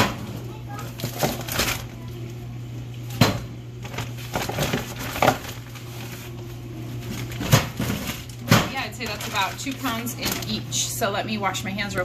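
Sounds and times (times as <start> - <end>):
steady low hum: 0.0 - 12.0
kitchen knocks and clunks: 3.1 - 5.5, 7.3 - 8.9.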